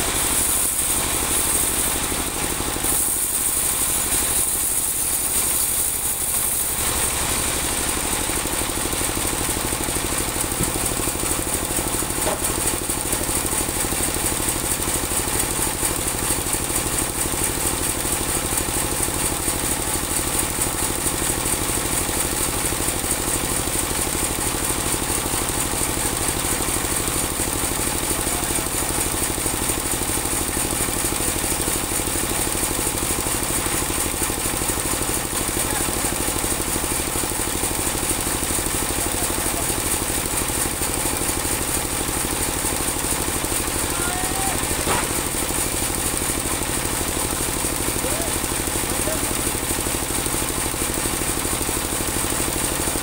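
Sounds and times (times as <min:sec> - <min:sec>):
band saw cutting log: 0:00.0 - 0:08.1, 0:09.5 - 0:14.5, 0:43.5 - 0:46.7
sawmill engine droning: 0:00.0 - 0:23.6, 0:24.3 - 0:53.0.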